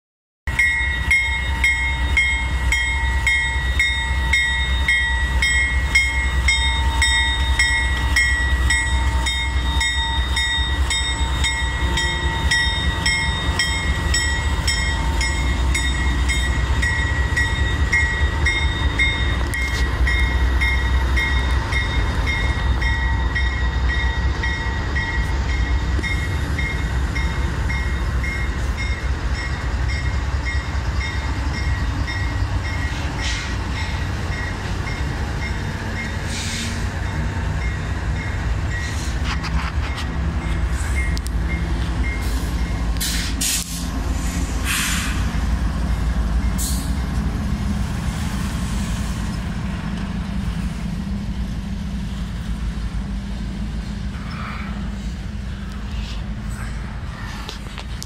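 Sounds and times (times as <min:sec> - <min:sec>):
locomotive bell ringing: 0:00.5 - 0:36.3, 0:39.8 - 0:42.9
locomotive engine rumble: 0:00.5 - 0:58.0.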